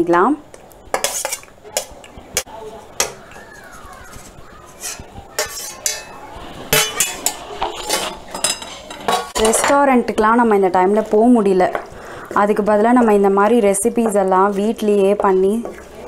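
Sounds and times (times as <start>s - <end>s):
utensils clinking on steel bowl: 0.9s - 1.9s, 4.6s - 9.9s.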